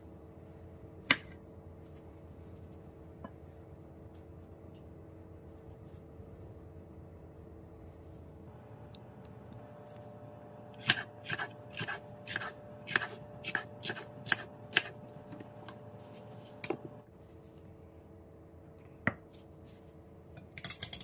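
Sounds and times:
knife slicing pepper on board: 0:10.8 - 0:15.0.

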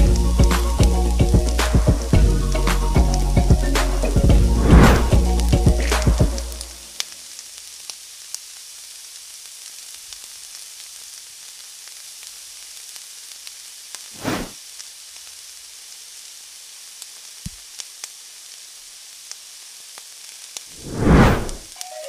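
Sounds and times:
paste sizzling in hot oil: 0:05.2 - 0:20.9
small pops: 0:17.0 - 0:18.2.

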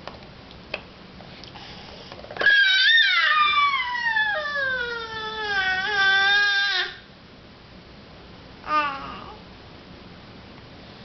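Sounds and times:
baby high-pitched vocal sound: 0:08.6 - 0:09.4.

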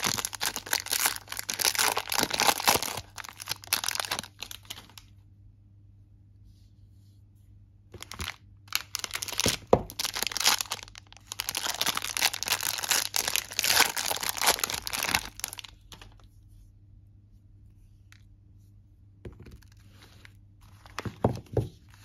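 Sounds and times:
plastic wrapper crinkling: 0:00.0 - 0:05.1, 0:08.0 - 0:16.3.

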